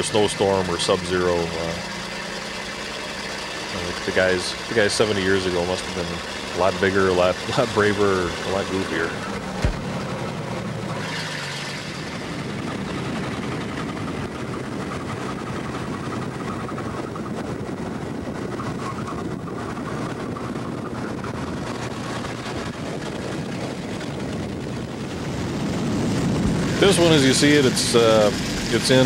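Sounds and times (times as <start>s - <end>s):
fire engine running: 0.0s - 29.0s
wind and road noise: 0.0s - 29.0s.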